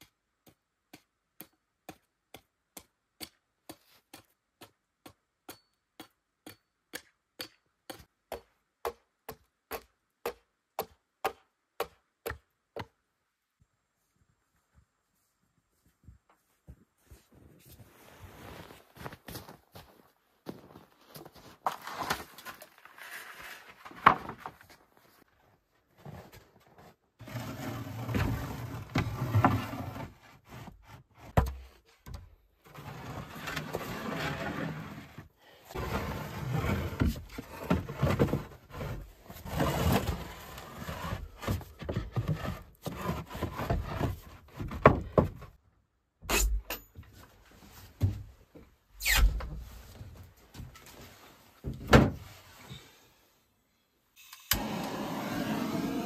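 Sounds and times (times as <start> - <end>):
footsteps: 14.5 - 22.7
wooden boards knocking and scraping: 23.8 - 24.7, 31.2 - 32.3, 35.8 - 40.3, 40.9 - 45.6, 51.6 - 52.2.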